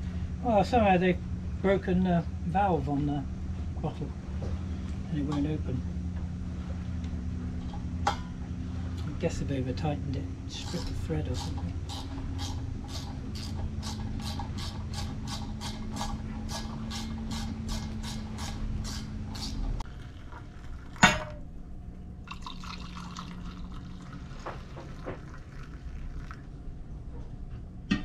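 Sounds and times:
steady low hum: 0.0s - 28.0s
hot water pouring into mugs: 19.9s - 21.2s, 22.3s - 26.5s.

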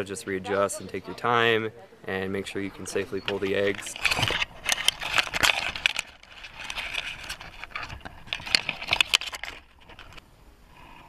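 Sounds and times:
leaves and twigs rustling: 2.4s - 10.2s.

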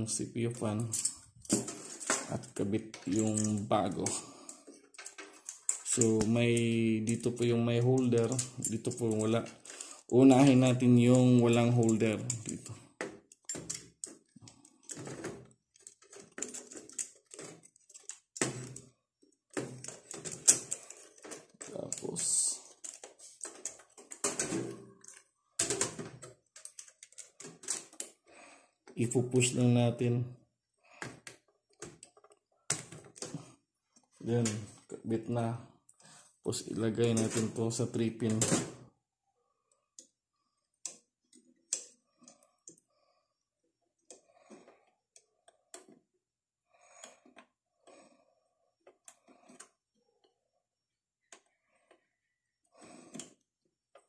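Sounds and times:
faint clicks and rustling of wires: 0.0s - 54.0s
clicks and scrapes of cpu cooler: 9.0s - 18.8s.

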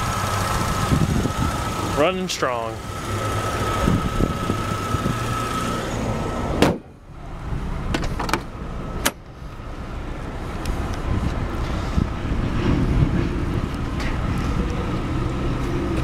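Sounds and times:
car engine idling: 0.0s - 16.0s
car door opening: 6.5s - 6.9s, 7.8s - 9.3s
car hood slamming shut: 6.6s - 6.9s.

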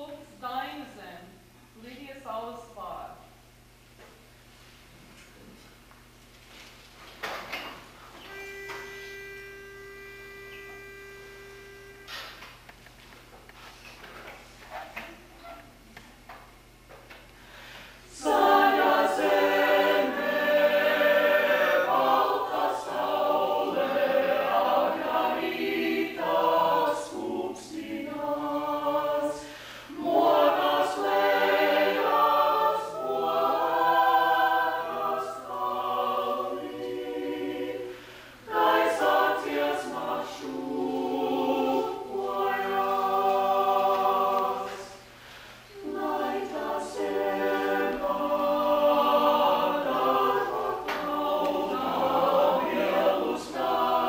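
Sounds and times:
vocal ensemble singing unaccompanied: 18.0s - 54.0s.

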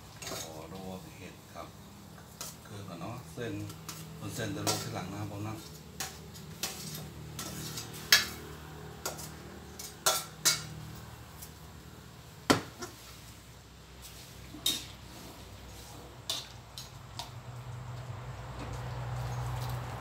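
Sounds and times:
metal spatula scraping a wok: 0.0s - 0.8s, 2.1s - 17.1s.

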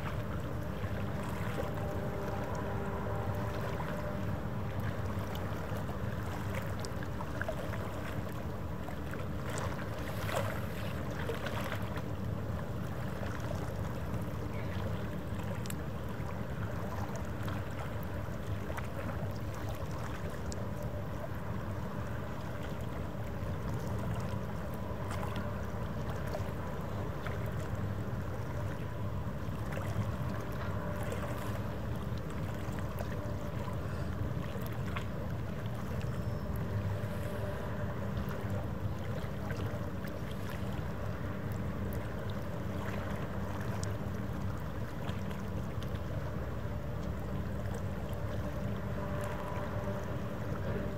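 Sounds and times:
ship machinery rumbling: 0.0s - 17.1s.

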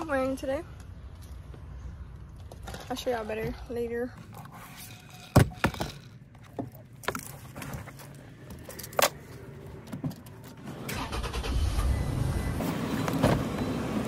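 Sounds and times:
car door opening: 12.6s - 13.7s.

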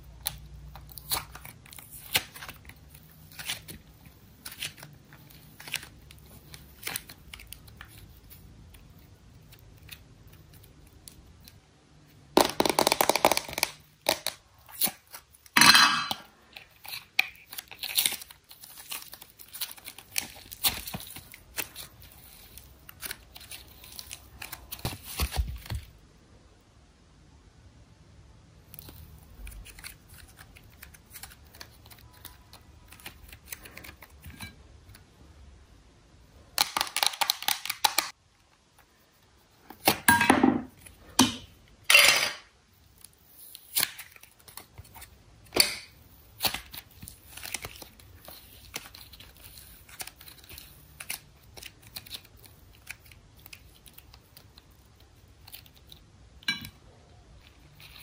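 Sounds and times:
sticky slime crackles: 0.0s - 11.6s, 16.6s - 25.9s, 42.9s - 56.2s
plastic crinkling: 16.4s - 25.9s, 46.1s - 56.0s.

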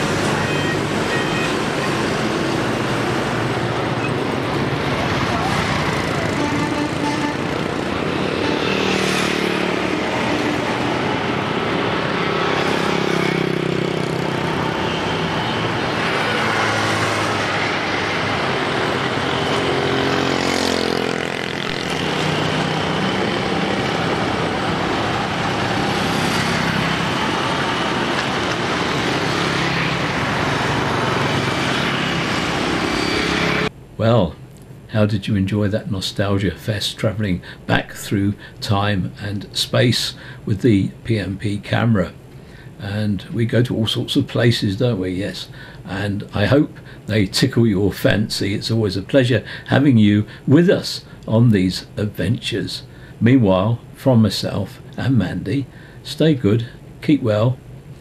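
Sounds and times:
lorries and motorbikes passing: 0.0s - 33.7s.

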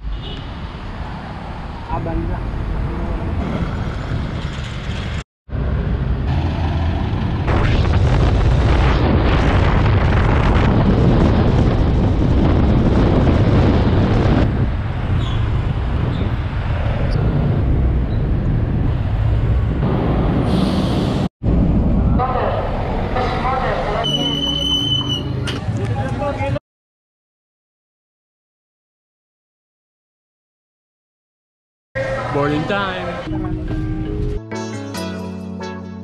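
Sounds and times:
road traffic: 0.0s - 7.6s, 11.0s - 26.6s, 32.0s - 34.4s
wind rumble on microphone: 6.9s - 22.2s.

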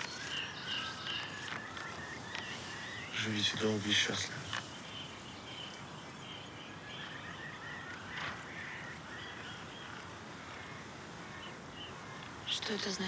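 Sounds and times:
soft rustle: 0.0s - 7.2s
small creatures chirping: 0.0s - 10.1s
background hiss: 0.0s - 13.0s.

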